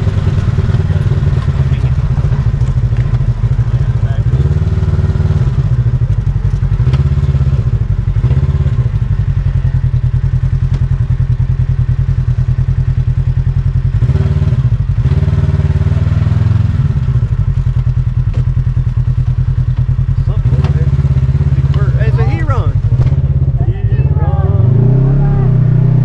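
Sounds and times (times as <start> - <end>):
vehicle knocks and clatter: 0.0 - 9.2, 9.8 - 11.7, 17.3 - 22.1, 22.8 - 23.7
off-road vehicle engine running: 0.0 - 26.0.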